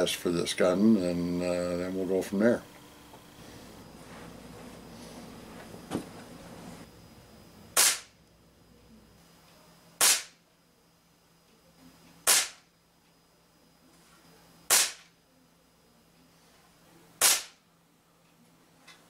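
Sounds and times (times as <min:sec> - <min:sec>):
air rifle firing: 0:07.8 - 0:08.1, 0:10.0 - 0:10.4, 0:12.3 - 0:12.6, 0:14.7 - 0:15.1, 0:17.2 - 0:17.6.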